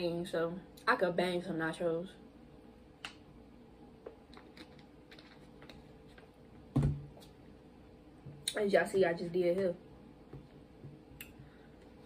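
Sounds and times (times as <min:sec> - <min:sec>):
bottle thump on table: 0:06.7 - 0:07.1.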